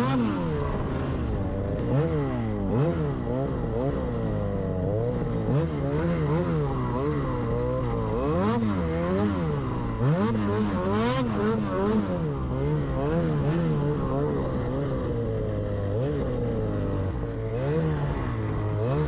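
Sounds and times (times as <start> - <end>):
snowmobile engine revving: 0.0 - 19.0.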